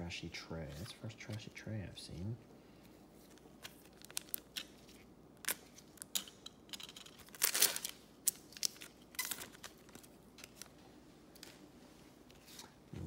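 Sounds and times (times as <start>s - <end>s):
foil wrapper crinkling and tearing: 3.2s - 6.2s, 7.2s - 10.7s.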